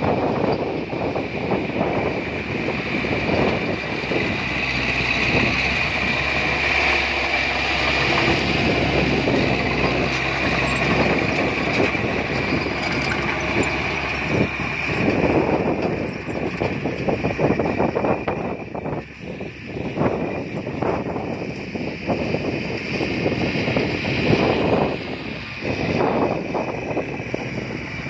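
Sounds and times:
bulldozer diesel engine whining: 0.0 - 28.0
bulldozer tracks clanking: 0.0 - 28.0.

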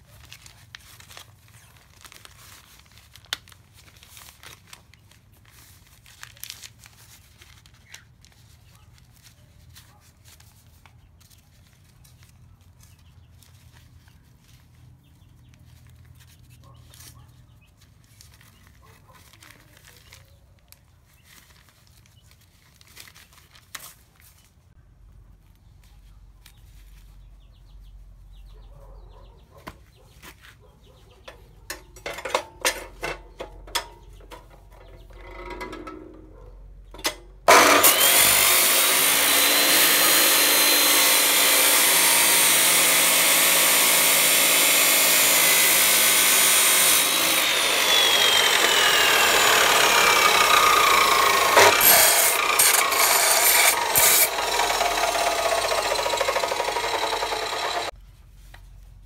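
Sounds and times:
metal clicks and knocks: 31.7 - 36.3
cut-off saw whining: 37.0 - 57.9
saw disc cutting steel: 37.0 - 57.9.

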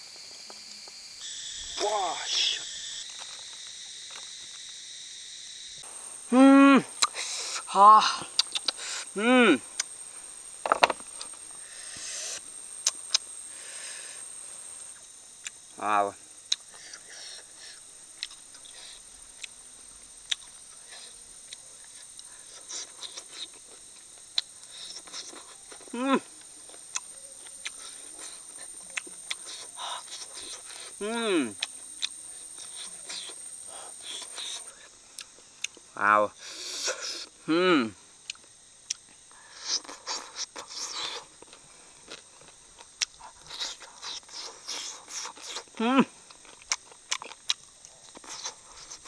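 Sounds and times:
sharp mouth clicks: 7.0 - 7.6, 8.2 - 9.0, 12.0 - 13.2, 16.5 - 19.6
mouth clicks and smacks: 7.0 - 9.1, 12.0 - 13.3, 16.5 - 19.6, 24.3 - 25.9, 26.8 - 30.9, 31.5 - 35.9, 38.2 - 49.0
soft chewing and sucking: 7.0 - 10.0, 16.5 - 19.6, 20.2 - 37.4, 38.2 - 49.0.

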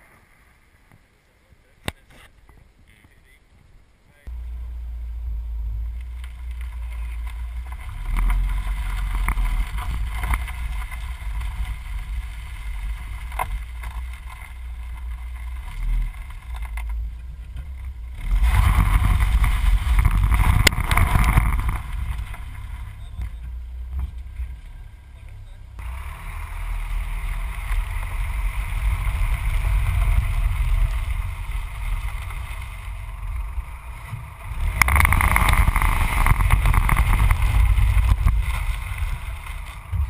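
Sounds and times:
gravel crunching and scraping: 0.0 - 40.0
car rumbling over gravel: 4.2 - 40.0
stones ticking against car underside: 5.9 - 26.0
wind on microphone: 17.2 - 24.5, 27.4 - 40.0.

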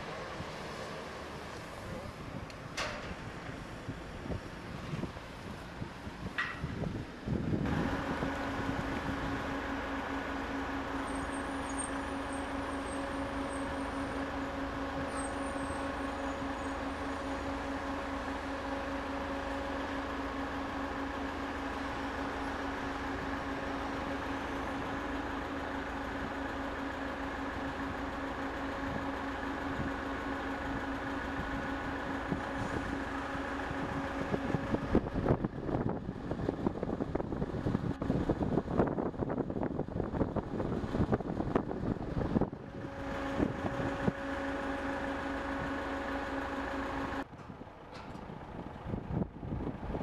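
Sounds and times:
heavy machinery engine hum: 0.0 - 50.0.

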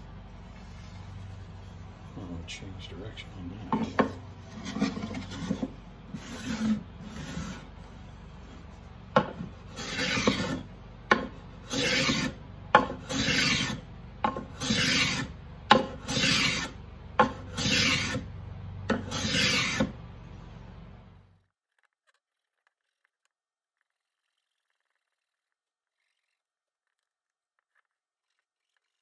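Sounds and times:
hand plane strokes on wood: 3.7 - 7.8, 9.2 - 18.2, 18.9 - 20.0.

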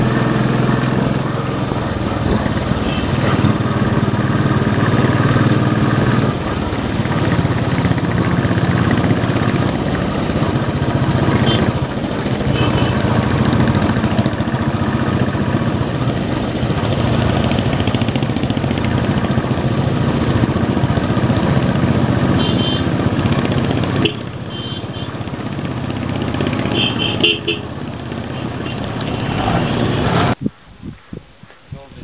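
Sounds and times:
motorcycle engine running: 0.0 - 30.4
vehicle horn toots: 2.8 - 3.4, 11.3 - 11.8, 12.4 - 13.2, 22.3 - 22.9, 24.0 - 25.2, 26.6 - 27.7, 28.3 - 30.3.

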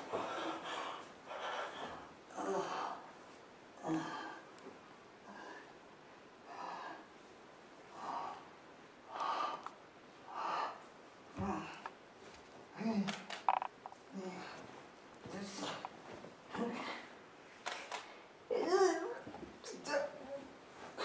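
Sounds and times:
person breathing heavily: 0.0 - 3.2, 3.8 - 4.5, 5.2 - 7.2, 7.9 - 11.9.

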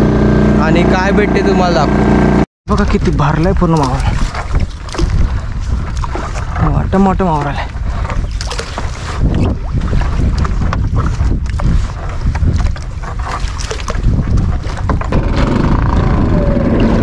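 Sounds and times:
water splashes: 2.7 - 16.3
wind buffeting microphone: 2.7 - 17.0.

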